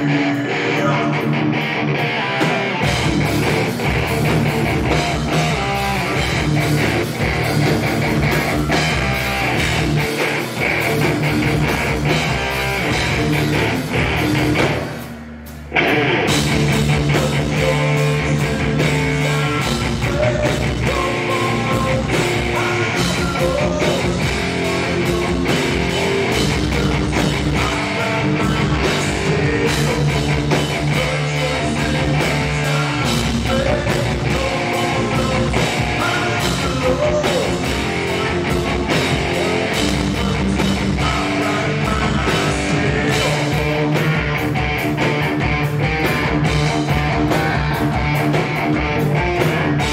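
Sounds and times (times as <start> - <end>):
man singing: 0.0 - 1.4, 16.7 - 44.4
bass guitar: 0.0 - 49.9
distorted electric guitar: 0.0 - 49.9
drum kit: 0.0 - 49.9.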